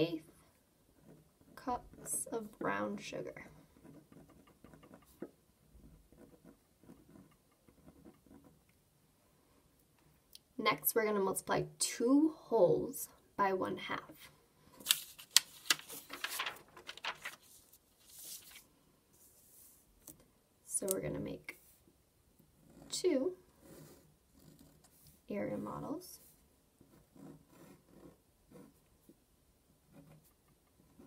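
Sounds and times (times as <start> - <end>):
marker scratching on paper: 3.5 - 8.6, 23.6 - 28.8
paper sliding across desk: 14.8 - 19.9
paper rustling: 14.8 - 20.2.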